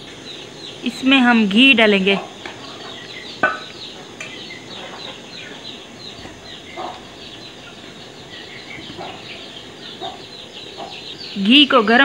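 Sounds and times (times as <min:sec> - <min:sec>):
birds chirping: 0:00.0 - 0:12.0.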